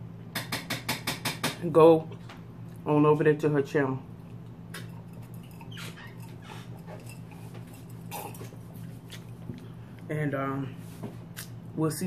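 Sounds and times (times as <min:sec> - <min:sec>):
steady low hum: 0:00.0 - 0:12.0
person sipping from glass: 0:04.8 - 0:09.4.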